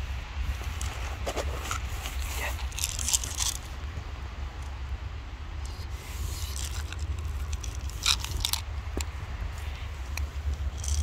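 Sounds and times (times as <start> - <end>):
steady low rumble: 0.0 - 11.0
cats crunching kibble: 0.6 - 3.9, 5.7 - 11.0
kibble rattling onto paving: 0.8 - 3.7, 6.4 - 9.1, 10.1 - 11.0.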